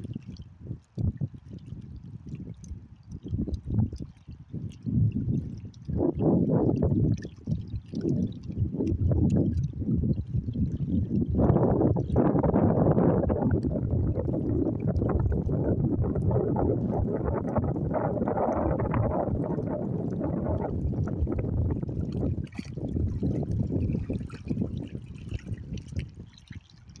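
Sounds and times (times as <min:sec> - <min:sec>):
wind rumbling on microphone: 0:00.0 - 0:27.0
lake water lapping: 0:06.6 - 0:09.7, 0:13.6 - 0:27.0.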